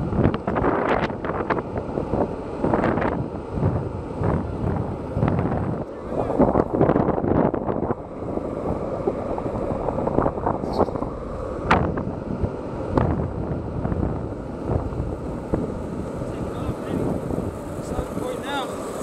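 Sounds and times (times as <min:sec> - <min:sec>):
wheels rolling on asphalt: 0:00.0 - 0:19.0
wind buffeting microphone: 0:00.0 - 0:19.0.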